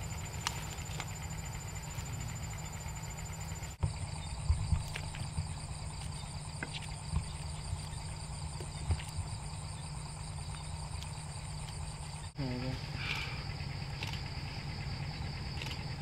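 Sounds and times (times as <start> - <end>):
footsteps in wet undergrowth: 0.0 - 2.7, 4.3 - 12.2
night insects trilling: 0.0 - 16.0.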